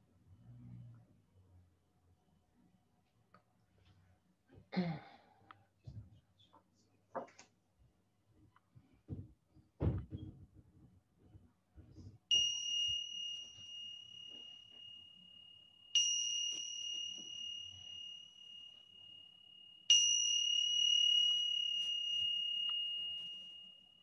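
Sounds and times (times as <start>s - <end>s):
meditation bell ringing: 12.3s - 24.0s.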